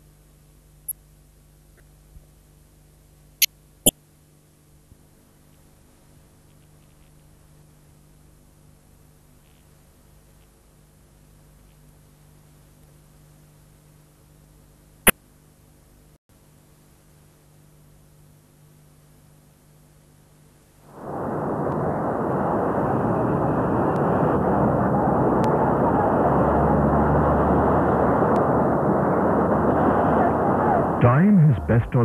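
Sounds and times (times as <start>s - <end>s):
faint hum: 0.0s - 32.0s.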